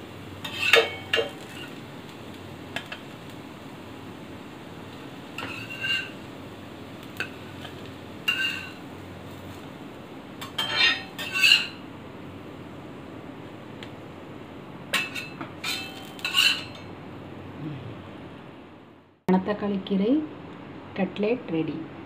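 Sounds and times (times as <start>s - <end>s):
metal spatula scraping griddle: 0.4s - 1.8s, 5.4s - 6.3s, 7.2s - 8.8s, 10.4s - 11.8s, 15.0s - 16.8s.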